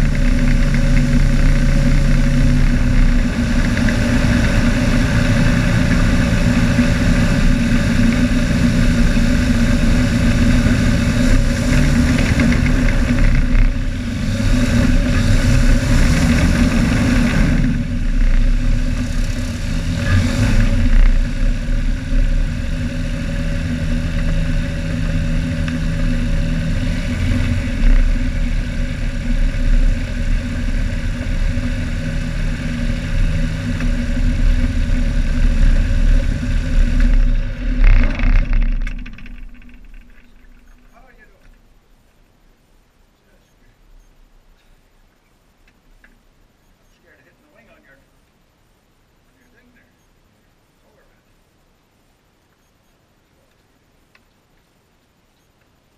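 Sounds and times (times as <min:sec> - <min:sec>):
light aircraft engine and propeller: 0:00.0 - 0:41.7.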